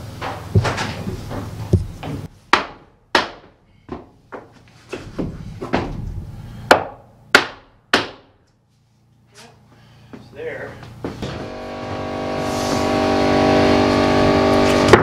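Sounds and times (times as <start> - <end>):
hammer knocking on wood sheets: 0.2 - 6.0.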